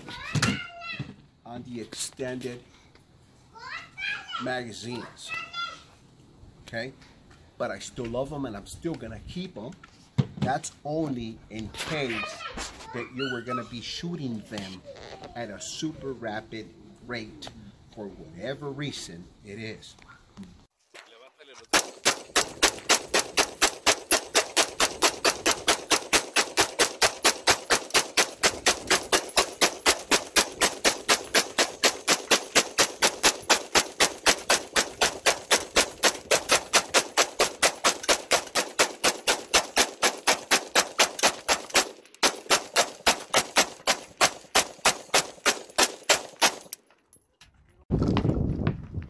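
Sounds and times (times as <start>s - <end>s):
rapid rifle shots: 21.7s - 46.7s.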